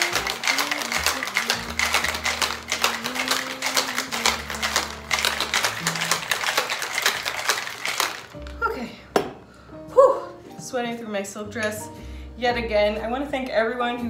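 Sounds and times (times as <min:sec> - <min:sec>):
ice rattling in cocktail shaker: 0:00.0 - 0:08.6
background music: 0:00.0 - 0:14.0.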